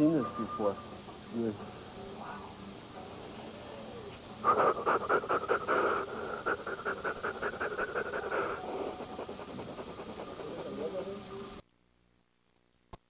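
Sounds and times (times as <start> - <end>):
man panting rapidly: 4.5 - 11.0.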